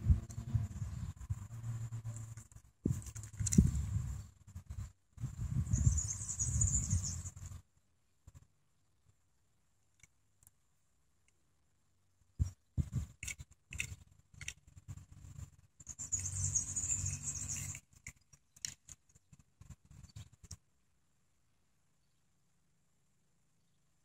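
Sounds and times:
toy car handling clicks and rubbing: 2.2s - 3.9s, 12.8s - 16.3s, 17.0s - 20.6s.

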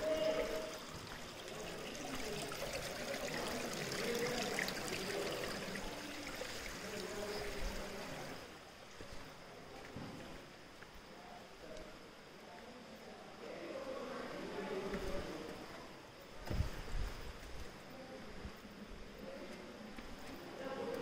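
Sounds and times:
stream trickling over rocks: 0.0s - 9.5s.

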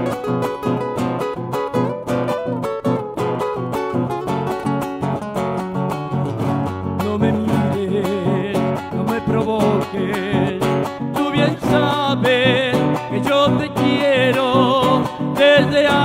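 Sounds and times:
nylon-string guitar picking melody: 0.0s - 16.0s
strummed guitar chords: 0.0s - 16.0s.

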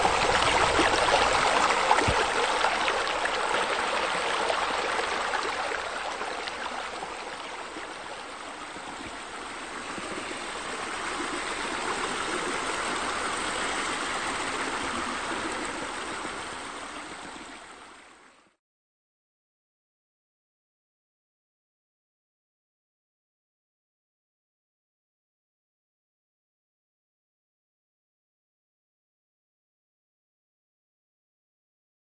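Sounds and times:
waterfall splashing into pool: 0.0s - 5.4s.

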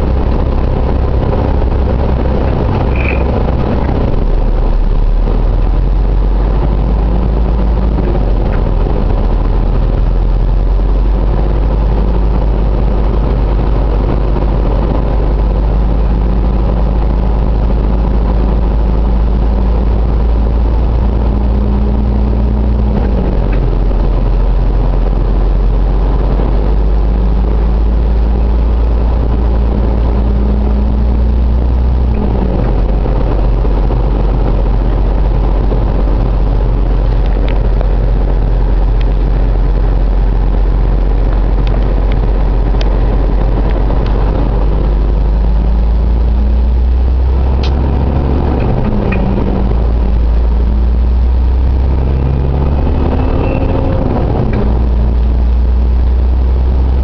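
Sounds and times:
car engine rumble: 0.0s - 57.0s
road noise inside car: 0.0s - 57.0s.

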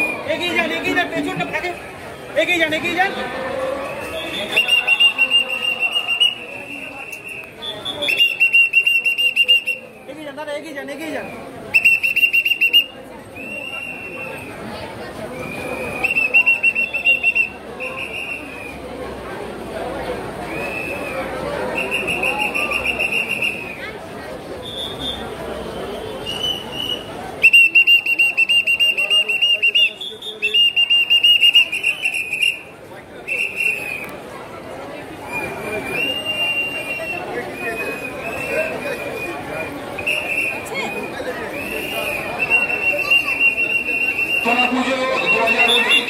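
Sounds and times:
crowd voices: 0.0s - 46.0s
whistle short blasts: 4.0s - 10.0s, 11.2s - 14.5s, 15.4s - 18.7s, 20.5s - 23.9s, 24.6s - 32.7s, 33.3s - 34.2s, 35.3s - 46.0s.

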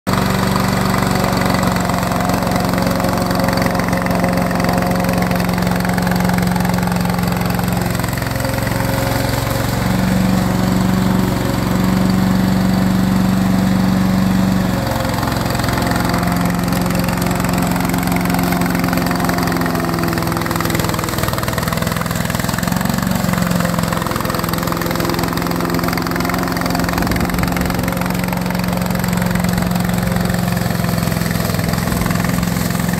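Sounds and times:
mower engine running: 0.1s - 32.9s.

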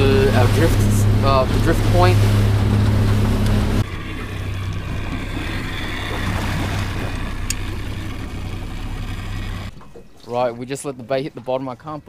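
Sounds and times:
outboard motor running: 0.0s - 11.1s
wind and water noise: 0.0s - 12.0s.

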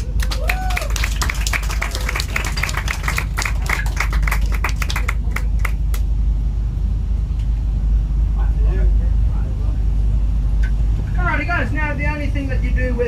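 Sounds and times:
audience applause: 0.0s - 6.0s
boat engines rumbling: 0.0s - 13.0s.

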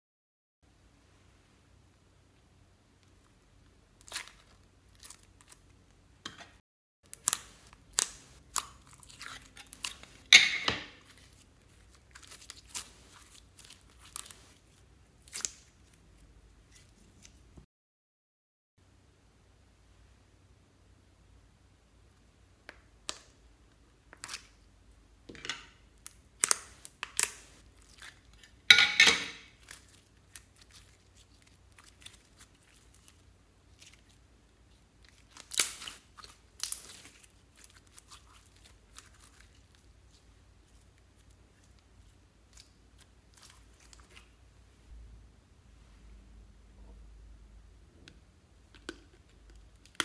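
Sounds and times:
slime squelching and crackling: 3.1s - 5.8s, 7.1s - 17.6s, 26.0s - 28.7s, 29.4s - 44.4s.

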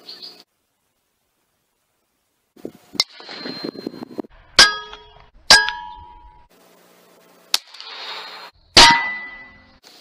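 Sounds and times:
short metallic ring: 8.8s - 9.8s.

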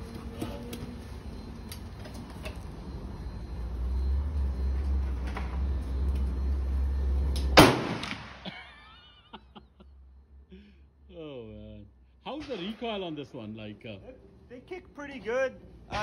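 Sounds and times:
rifle shot: 7.6s - 8.5s.

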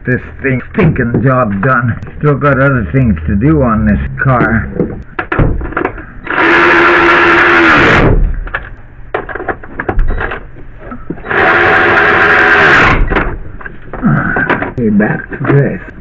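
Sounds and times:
cordless drill motor whine: 6.2s - 8.1s, 11.2s - 13.0s.

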